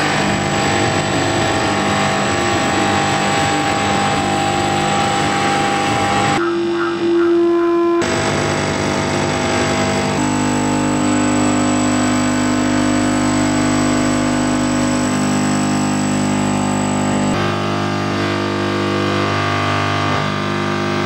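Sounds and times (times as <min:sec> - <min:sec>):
droning sustained tones: 0:00.0 - 0:21.0.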